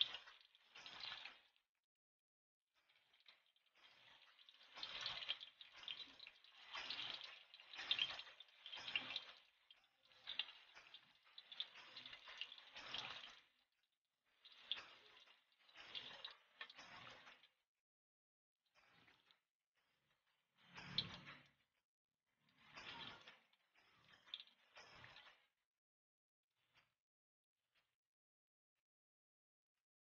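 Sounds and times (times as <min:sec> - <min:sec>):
tofu sizzling in hot oil: 0:00.0 - 0:01.6, 0:02.8 - 0:17.6.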